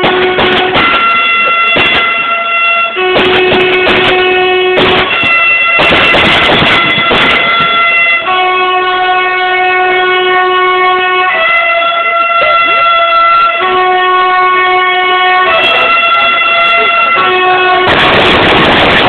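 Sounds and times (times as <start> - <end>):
train horn blasts: 0.0 - 19.0
rush of noise: 17.3 - 19.0.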